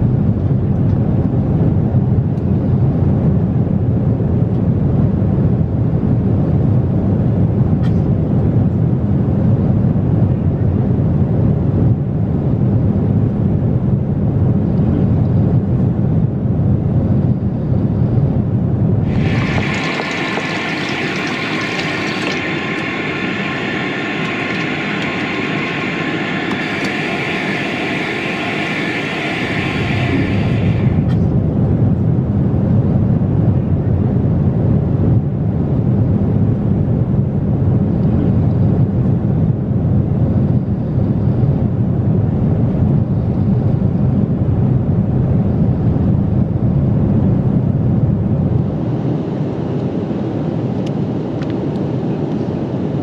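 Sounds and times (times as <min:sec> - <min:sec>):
airliner cabin drone: 0:00.0 - 0:53.0
tap water running into basin: 0:19.1 - 0:30.8
steady hiss: 0:19.1 - 0:31.2.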